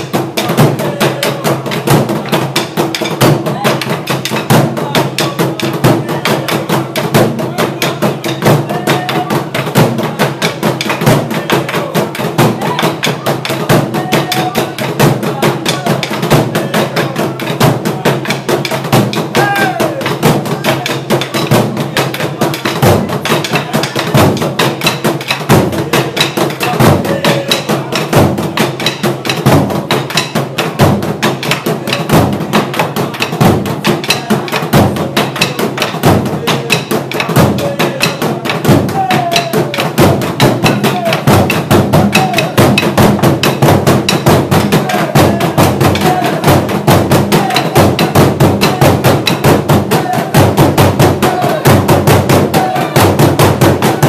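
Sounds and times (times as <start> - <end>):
large drums beaten fast: 0.0 - 54.0
voices calling out: 44.5 - 54.0.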